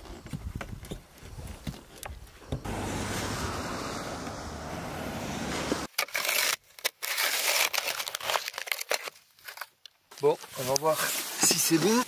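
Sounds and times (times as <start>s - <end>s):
snow scraped off a roof: 2.6s - 5.9s, 10.6s - 12.0s.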